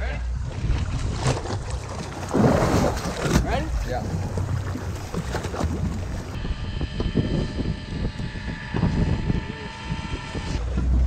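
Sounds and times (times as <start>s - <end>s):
wind buffeting microphone: 0.3s - 11.0s
water splashing against boat hull: 0.4s - 6.4s
fishing reel motor whine: 6.0s - 10.6s.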